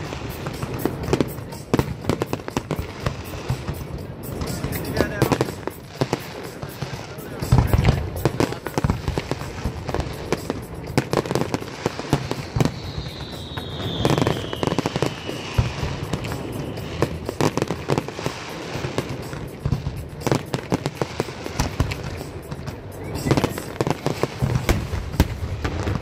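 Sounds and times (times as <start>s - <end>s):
firework whistle falling in pitch: 0.0s - 26.0s
fireworks bangs and crackling: 0.0s - 26.0s.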